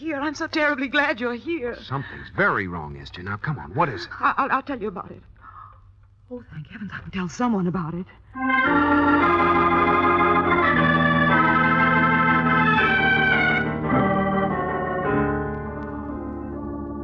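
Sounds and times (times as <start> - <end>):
sustained organ chords: 8.3 - 17.0.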